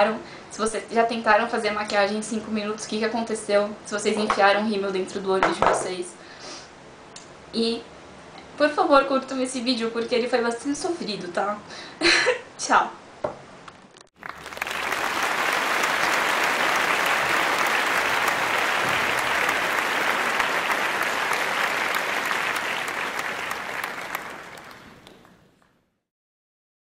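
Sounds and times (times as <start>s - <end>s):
applause: 14.2s - 25.7s.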